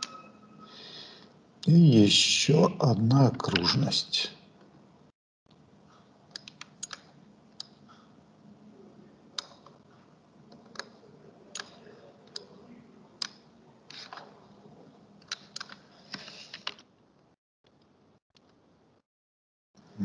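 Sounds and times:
mouse and keyboard clicks: 6.3 - 7.8, 15.2 - 16.9.

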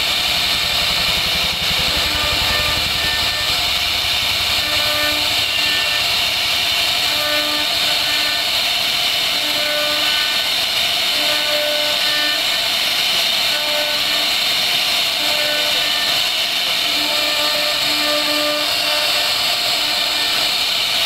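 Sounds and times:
motors humming: 0.0 - 12.8
router spindle cutting wood: 0.0 - 21.0.

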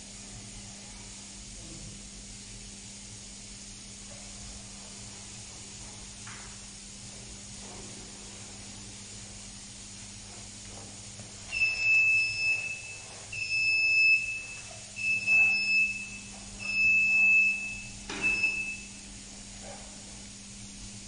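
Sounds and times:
steady low hum: 0.0 - 21.0
electronic buzzer beeps: 11.5 - 19.1.

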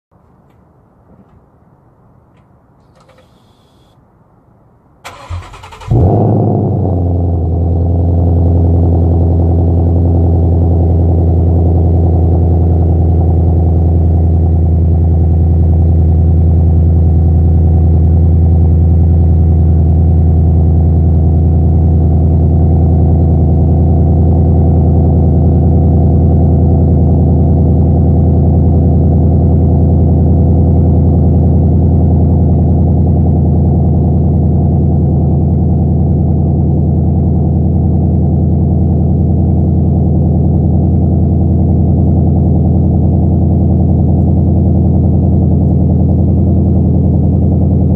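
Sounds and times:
car engine starting and idling: 2.8 - 3.9, 5.0 - 47.9
engine cranking: 5.1 - 5.9.

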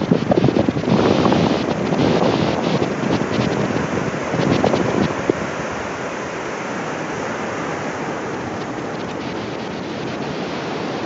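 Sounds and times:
surf breaking on rocky shore: 0.0 - 11.0
wind buffeting microphone: 0.0 - 11.0.

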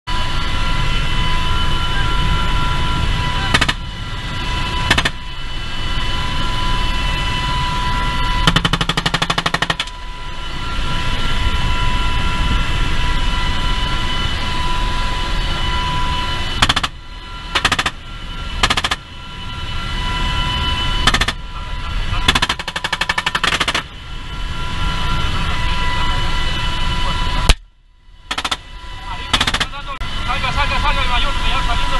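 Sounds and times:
helicopter turbine whine and rotor: 0.1 - 31.9
machine-gun fire: 8.5 - 9.9, 18.6 - 19.0, 21.1 - 21.4, 29.3 - 29.8.

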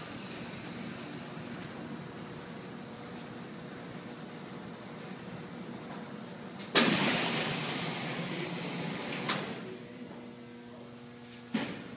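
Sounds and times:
high machine whine: 0.0 - 11.2.

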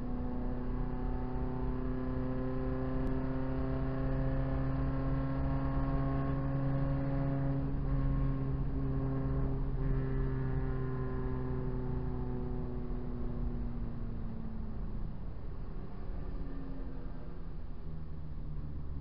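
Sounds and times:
race car engine at high revs: 0.0 - 13.4.

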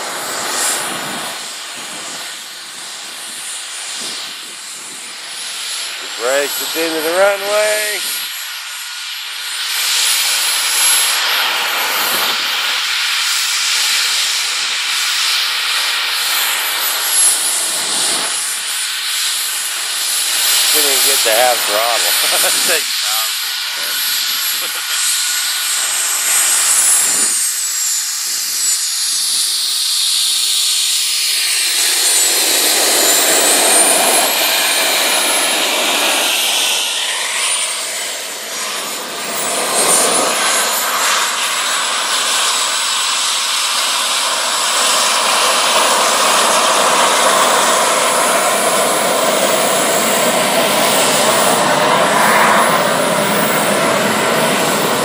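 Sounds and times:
jet noise rushing: 0.0 - 55.0
model turbine engines whining: 0.0 - 55.0.

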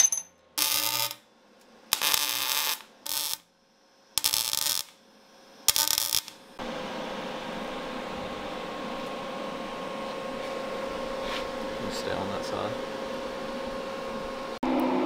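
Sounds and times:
welder arc crackling hiss: 0.6 - 6.6
steady hum: 6.3 - 15.0.

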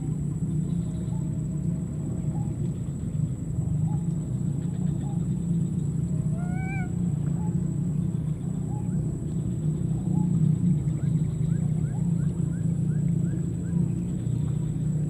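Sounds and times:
steady low rumble: 0.0 - 15.0
baby monkey whining cry: 6.4 - 7.0.

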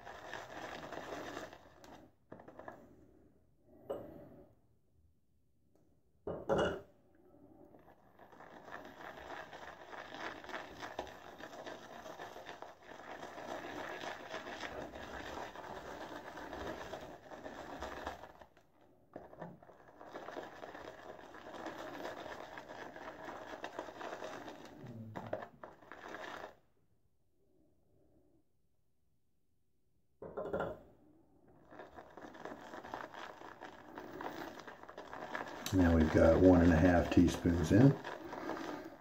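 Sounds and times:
brush whipping lather in bowl: 32.0 - 39.0.

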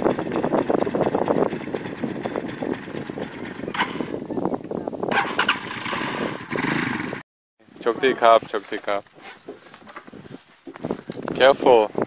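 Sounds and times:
small motorcycle engine running: 0.0 - 4.2, 5.1 - 7.2.

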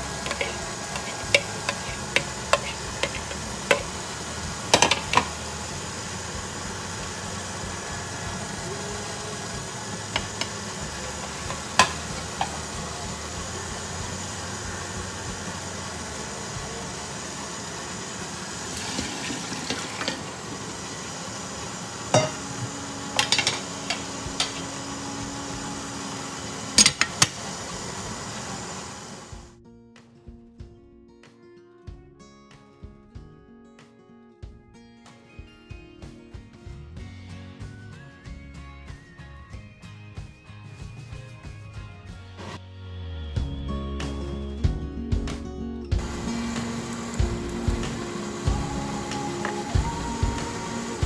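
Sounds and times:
corn hissing while cooking: 0.0 - 29.5, 46.0 - 51.0
metal spoon scraping ceramic plate: 0.2 - 3.9.

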